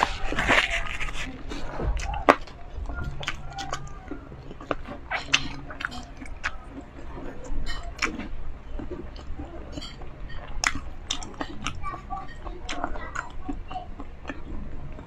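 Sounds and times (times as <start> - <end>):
chewing crispy food: 0.0 - 15.0.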